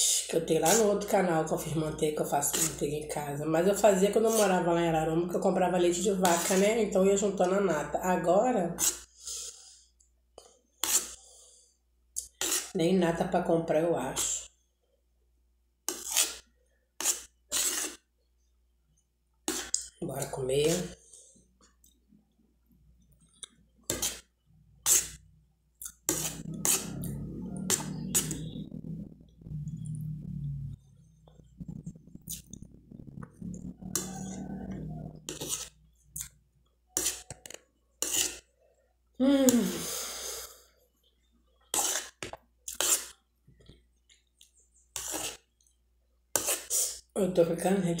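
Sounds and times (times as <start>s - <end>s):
metal spoon scraping a plate: 2.4s - 2.9s, 4.0s - 4.6s, 5.9s - 6.9s, 8.8s - 9.1s, 10.8s - 11.2s, 12.2s - 12.8s, 15.9s - 18.0s, 24.8s - 25.3s, 25.9s - 28.7s, 33.8s - 35.8s, 36.9s - 38.5s, 41.7s - 43.2s, 44.9s - 45.5s
sharp nose sniffs: 9.0s - 9.8s, 39.7s - 40.6s, 46.4s - 47.1s
woman chewing food: 21.1s - 38.9s.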